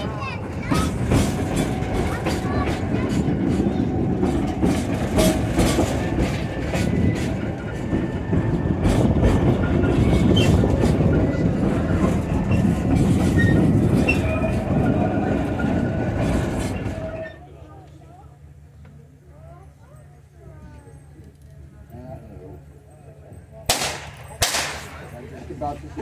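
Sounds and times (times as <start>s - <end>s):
wheels clicking over rail joints: 0.0s - 18.0s
railcars rumbling along track: 0.0s - 26.0s.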